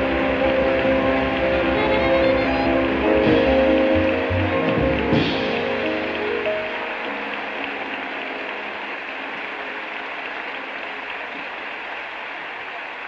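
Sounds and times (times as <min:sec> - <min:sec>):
band's held notes: 0:00.0 - 0:08.8
audience applauding: 0:00.0 - 0:13.0.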